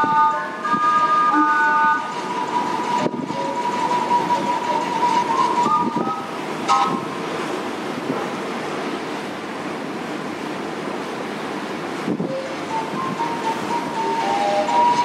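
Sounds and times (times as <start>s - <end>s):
steam whistle: 0.0s - 7.1s, 12.3s - 15.0s
rushing water: 0.0s - 15.0s
wind: 0.0s - 15.0s.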